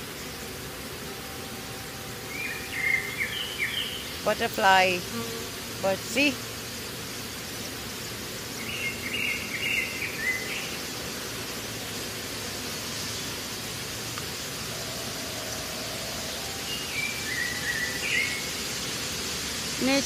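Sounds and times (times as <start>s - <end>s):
birds chirping: 0.0s - 5.1s, 5.8s - 10.9s, 12.9s - 18.9s
steady background hiss: 0.0s - 20.0s.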